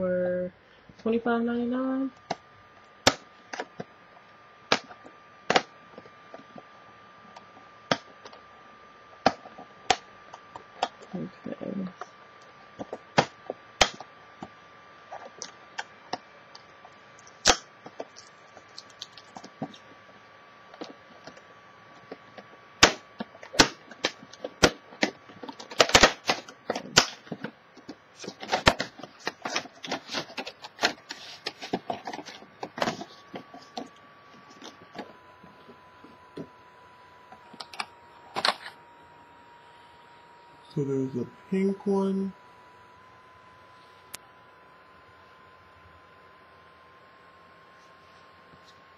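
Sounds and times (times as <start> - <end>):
stiff plastic crackling and snapping: 12.0 - 20.1, 20.7 - 35.2.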